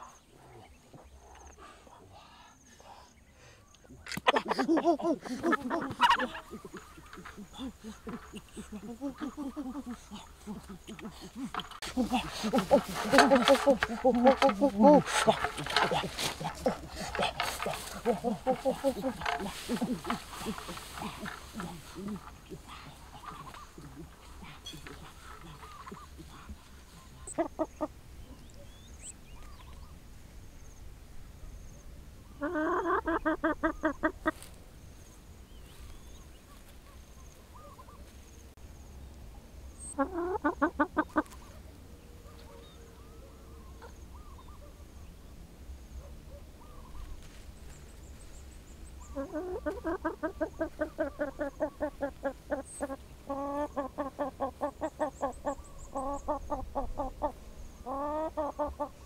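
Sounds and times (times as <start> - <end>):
chicken clucking: 4.1 - 29.6, 32.4 - 34.5, 39.8 - 41.6, 49.1 - 59.0.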